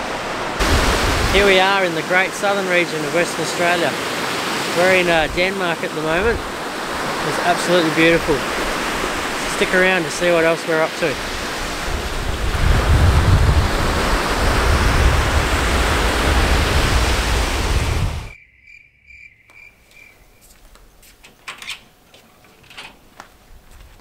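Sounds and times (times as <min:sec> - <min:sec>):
wind buffeting microphone: 0:00.0 - 0:01.6, 0:04.4 - 0:05.5, 0:06.1 - 0:07.3, 0:11.2 - 0:18.4
surf washing on beach: 0:00.0 - 0:18.3.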